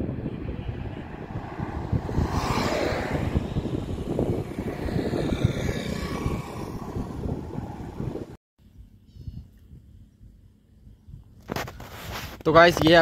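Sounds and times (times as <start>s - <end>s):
car passing: 0.0s - 8.4s
motorcycle passing: 0.0s - 8.4s.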